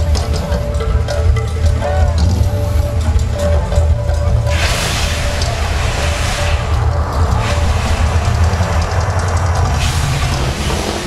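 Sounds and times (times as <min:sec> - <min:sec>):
show music with pulsing drums: 0:00.0 - 0:11.0
loud hissing fire rush: 0:04.2 - 0:11.0.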